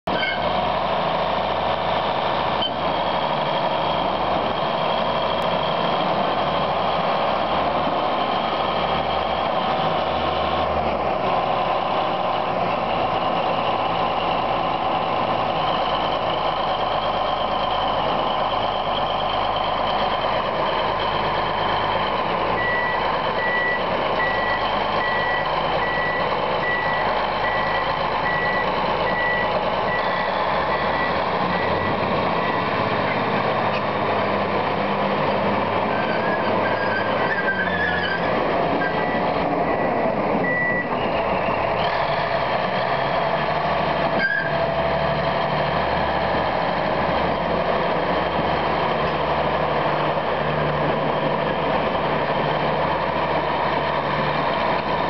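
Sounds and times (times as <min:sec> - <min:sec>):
bulldozer diesel engine running: 0:00.0 - 0:55.0
reversing alarm beeping: 0:22.6 - 0:32.9, 0:38.8 - 0:41.0.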